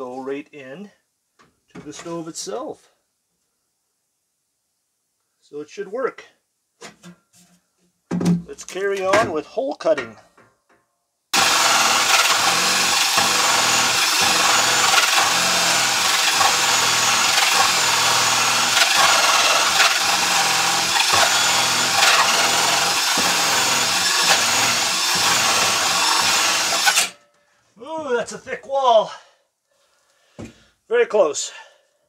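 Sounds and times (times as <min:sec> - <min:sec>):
drill with hole saw cutting wood: 0:11.4 - 0:27.2.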